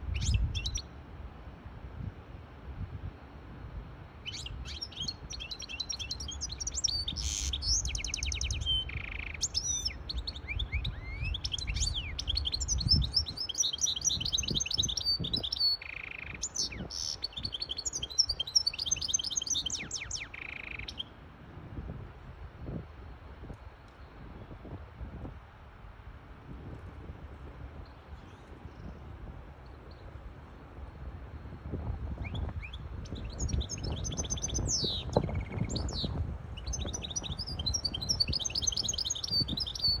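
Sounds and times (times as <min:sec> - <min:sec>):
finch singing twittering song: 0:00.0 - 0:00.9, 0:04.2 - 0:21.1, 0:32.1 - 0:40.0.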